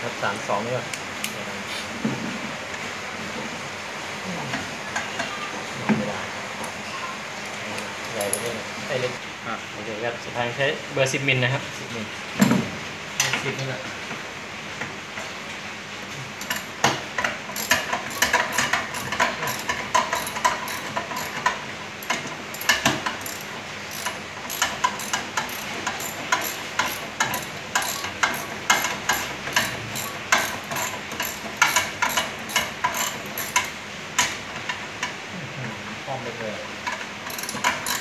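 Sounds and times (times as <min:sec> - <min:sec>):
socket ratchet wrench clicking: 0:17.6 - 0:33.7, 0:37.3 - 0:38.0.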